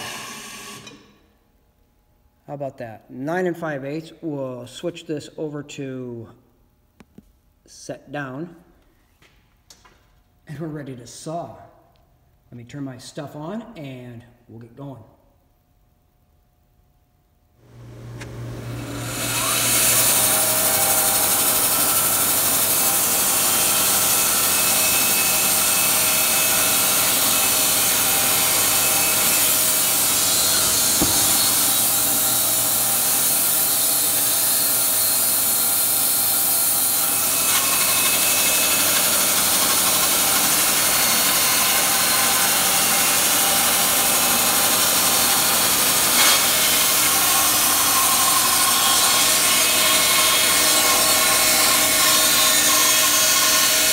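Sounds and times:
band sawmill sawing log: 0:17.8 - 0:53.9
small knock: 0:31.0 - 0:31.6.

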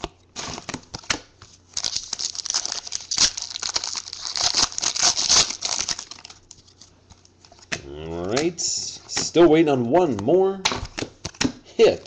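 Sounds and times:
trading cards crinkling and rustling: 0:00.3 - 0:09.2.

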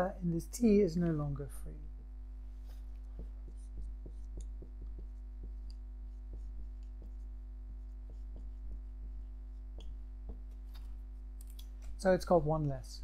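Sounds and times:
low electrical hum: 0:00.0 - 0:13.0
taps of writing on a board: 0:03.0 - 0:10.6.

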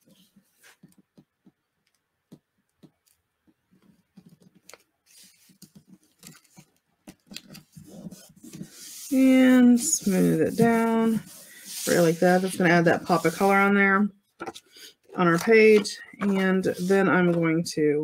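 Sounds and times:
paper rustling and rubbing: 0:00.0 - 0:01.0, 0:03.8 - 0:13.9, 0:14.5 - 0:17.5
paper taps and crinkles: 0:00.1 - 0:08.9.

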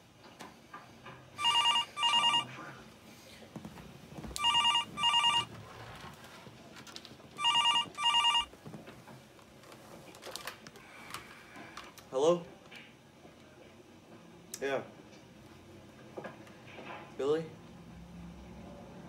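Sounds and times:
telephone ringing: 0:01.4 - 0:02.6, 0:04.4 - 0:05.6, 0:07.4 - 0:08.5.

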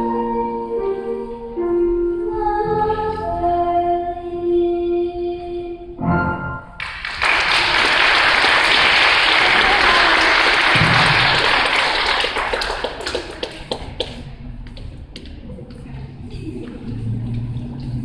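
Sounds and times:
audience applauding: 0:06.8 - 0:14.2.

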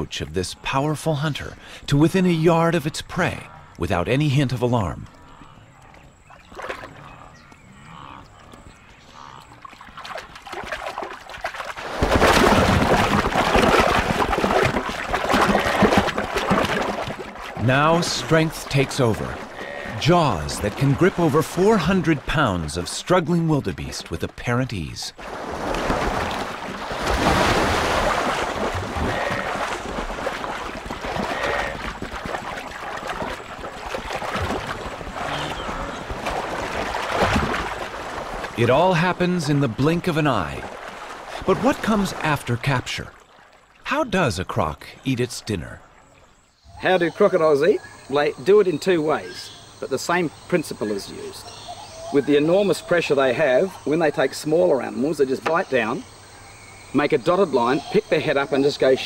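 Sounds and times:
water dripping and lapping: 0:01.6 - 0:46.4
loud splashing and thrashing: 0:09.6 - 0:24.2, 0:25.2 - 0:43.3.

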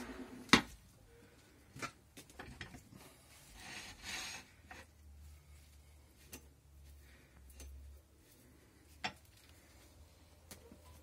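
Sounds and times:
hand rubbing and scraping wood: 0:00.0 - 0:10.8.

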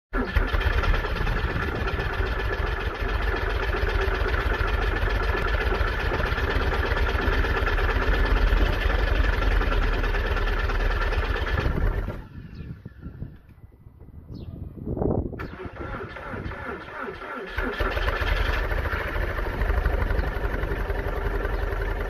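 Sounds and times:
car engine idling: 0:00.2 - 0:12.3, 0:16.7 - 0:22.0.

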